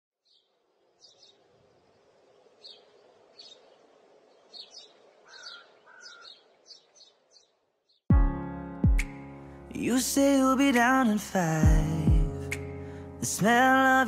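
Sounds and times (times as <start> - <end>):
birds chirping: 0.2 - 8.1.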